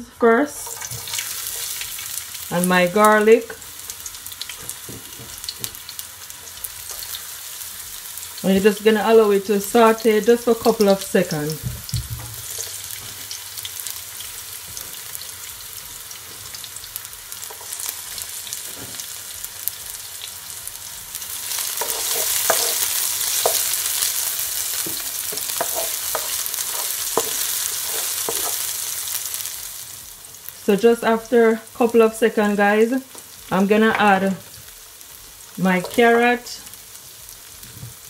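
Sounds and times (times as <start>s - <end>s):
onion sizzling in hot oil: 0.2s - 38.0s
spatula scraping and tapping pan: 4.4s - 7.2s, 17.4s - 18.0s, 21.6s - 28.7s, 35.8s - 36.2s.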